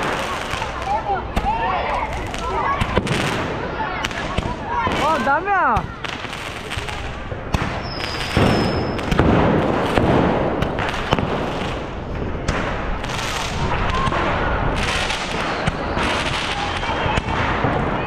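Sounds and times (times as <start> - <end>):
firecrackers banging and crackling: 0.0 - 18.0
firework whistle: 7.8 - 9.2, 14.8 - 17.1.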